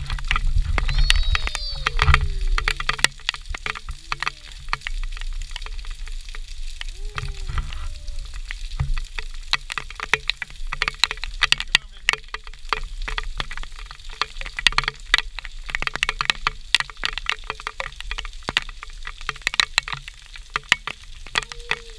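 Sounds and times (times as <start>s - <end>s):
raindrops ticking near microphone: 0.0s - 21.9s
steady rain pattering: 0.0s - 21.9s
toddler calling: 0.9s - 2.5s, 21.4s - 21.9s.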